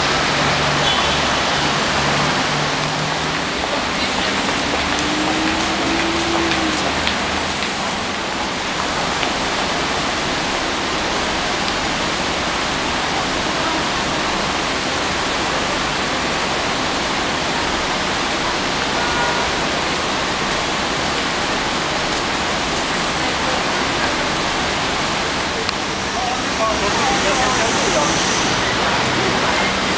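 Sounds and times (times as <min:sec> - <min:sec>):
steady rushing noise: 0:20.0 - 0:29.9.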